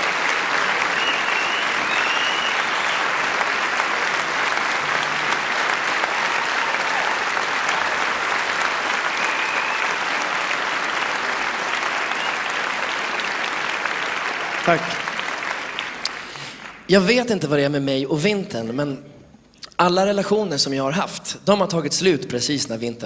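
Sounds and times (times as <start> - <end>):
audience applauding: 0.0 - 16.9.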